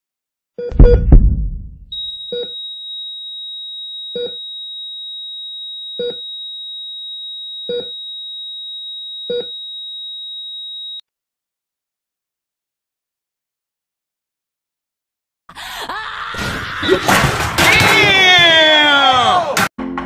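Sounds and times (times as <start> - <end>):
heart monitor blips: 0.6 - 2.7, 4.1 - 4.5, 6.0 - 6.4, 7.6 - 8.1, 9.2 - 9.6.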